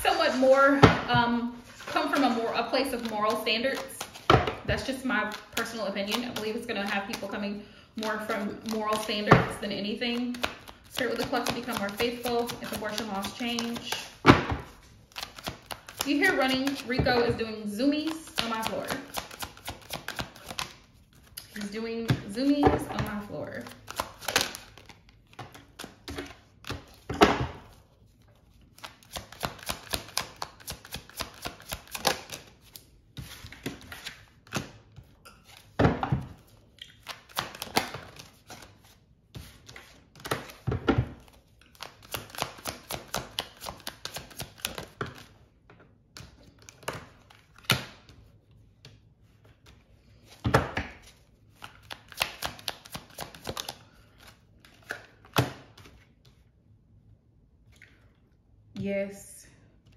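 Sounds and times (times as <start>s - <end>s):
cards being shuffled: 1.6s - 7.4s, 8.0s - 9.3s, 10.2s - 17.0s, 18.0s - 21.8s, 23.2s - 27.1s, 27.7s - 34.8s, 36.4s - 40.6s, 41.2s - 45.4s, 48.8s - 56.4s.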